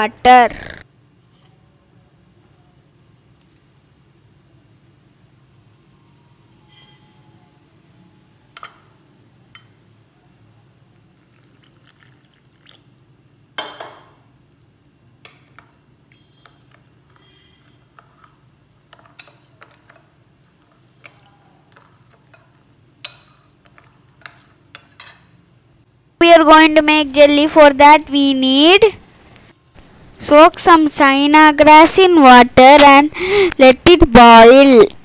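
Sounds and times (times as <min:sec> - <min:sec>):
spoon clinking and scraping bowl: 0:15.3 - 0:25.3.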